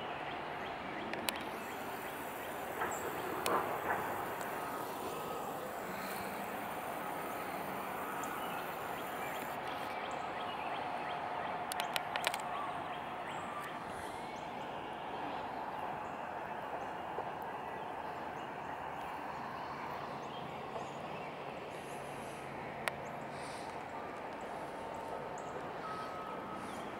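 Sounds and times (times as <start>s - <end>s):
sharp clicks: 1.1s - 10.0s, 11.7s - 12.5s
train wheels rumbling on rail: 1.4s - 9.6s.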